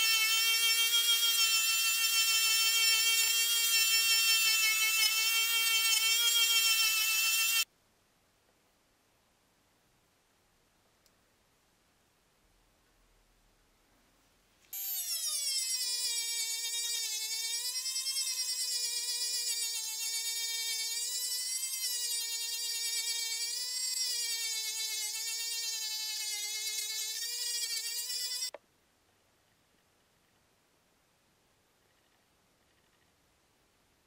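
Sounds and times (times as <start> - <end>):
rotary tool motor whine: 0.0 - 7.6, 14.8 - 28.6.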